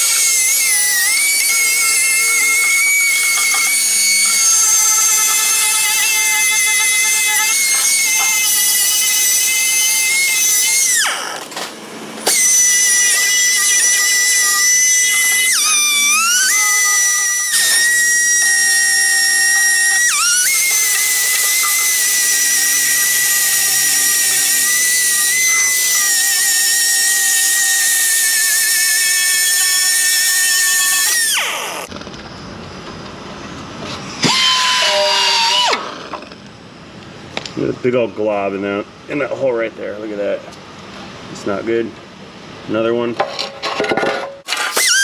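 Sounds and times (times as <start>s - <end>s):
polishing wheel high-pitched whine: 0.0s - 11.5s, 12.2s - 31.9s.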